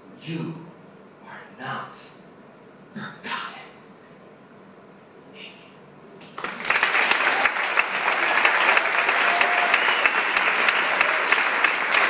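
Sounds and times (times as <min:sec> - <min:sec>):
crowd clapping: 0:06.2 - 0:12.0
faint cheer: 0:06.9 - 0:12.0.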